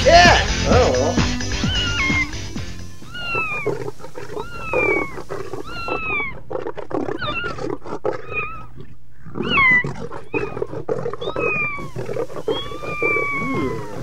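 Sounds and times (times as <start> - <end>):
cat meowing: 1.2 - 2.4, 3.0 - 6.4, 8.2 - 8.7, 9.4 - 9.8, 11.3 - 14.0.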